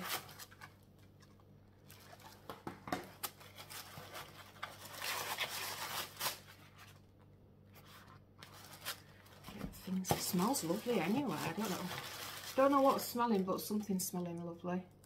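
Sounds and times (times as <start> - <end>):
packing peanuts rustling: 3.1 - 7.1, 7.8 - 13.7.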